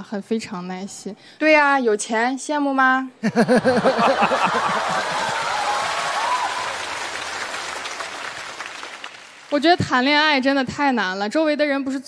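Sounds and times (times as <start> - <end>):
audience laughing: 3.2 - 6.1
audience applauding: 3.6 - 9.8.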